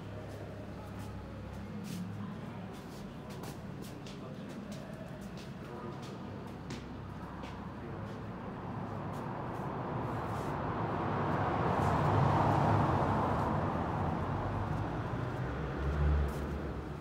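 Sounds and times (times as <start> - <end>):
road vehicle passing: 7.8 - 17.0.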